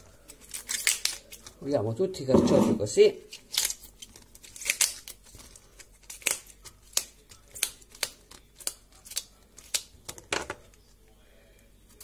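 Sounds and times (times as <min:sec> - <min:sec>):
artichoke leaves snapping: 0:00.3 - 0:01.6, 0:03.3 - 0:10.3.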